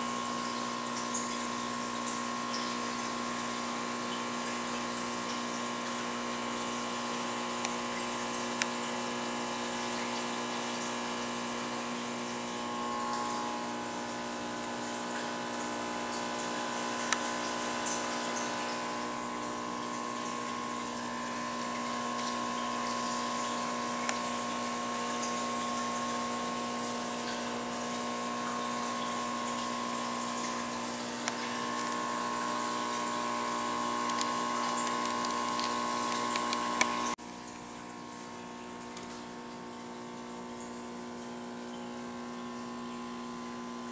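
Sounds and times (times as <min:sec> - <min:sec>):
aquarium pump humming: 0:00.0 - 0:43.9
running water: 0:00.0 - 0:43.9.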